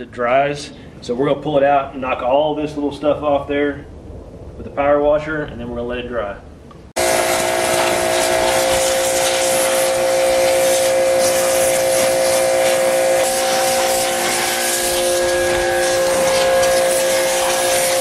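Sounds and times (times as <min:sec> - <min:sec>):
pressure washer machine hum: 0:07.0 - 0:18.0
pressure washer spray hiss: 0:07.0 - 0:18.0.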